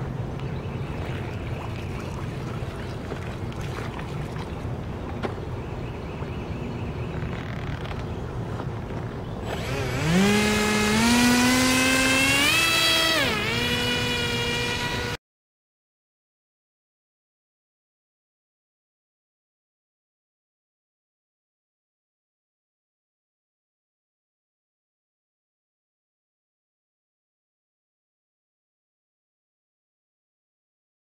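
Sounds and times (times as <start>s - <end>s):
rc airboat motor whine: 9.4s - 15.2s.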